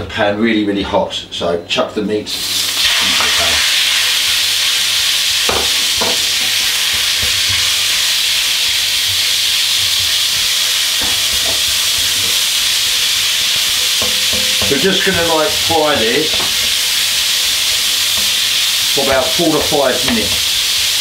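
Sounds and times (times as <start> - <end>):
meat sizzling in hot oil: 2.3 - 21.0
wooden spoon knocking on pan: 5.5 - 15.4, 16.3 - 16.8, 19.1 - 20.5.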